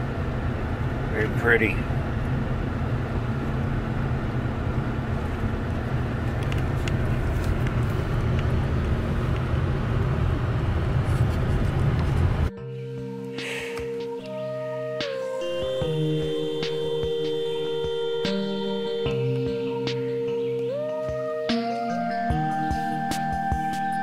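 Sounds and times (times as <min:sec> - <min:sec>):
car engine and tyres rumbling: 0:00.0 - 0:24.0
music: 0:12.5 - 0:24.0.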